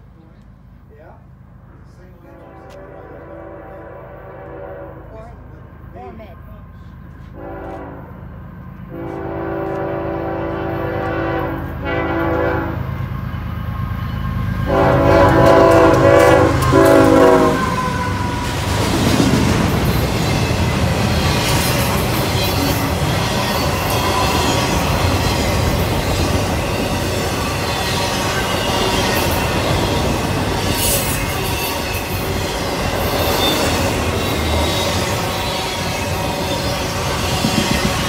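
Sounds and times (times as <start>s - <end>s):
freight cars rumbling: 0.0s - 7.4s, 12.6s - 38.0s
locomotive horn blasts: 2.2s - 5.3s, 7.3s - 8.2s, 8.9s - 13.0s, 14.6s - 18.4s
clicking train wheels: 13.0s - 38.0s.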